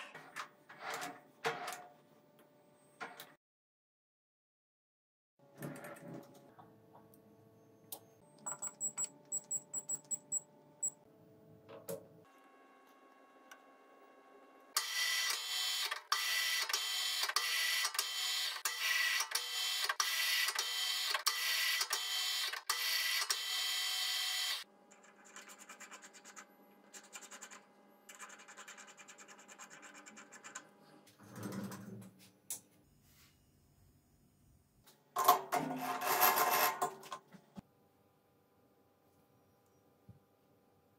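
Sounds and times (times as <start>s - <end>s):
tool scraping cutting metal: 35.2s - 37.1s.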